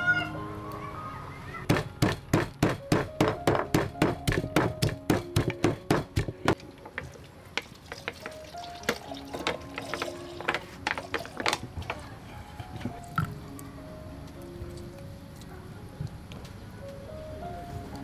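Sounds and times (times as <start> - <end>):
pestle pounding in wooden mortar: 1.7 - 11.9.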